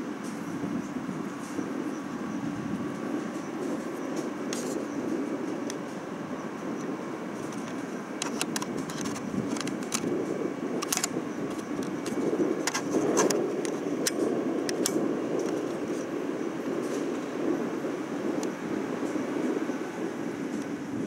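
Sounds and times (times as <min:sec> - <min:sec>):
locomotive low rumble: 0:00.0 - 0:21.0
metallic wheel clicks: 0:10.8 - 0:15.6.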